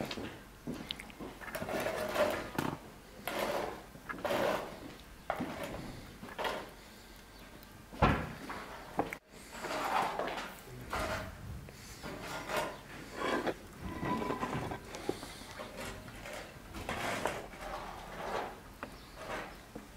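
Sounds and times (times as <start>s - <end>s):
spoon scraping rice from pot: 12.0s - 19.6s.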